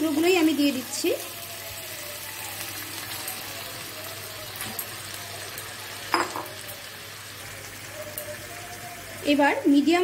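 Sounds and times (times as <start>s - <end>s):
chicken sizzling in oil: 0.0s - 10.0s.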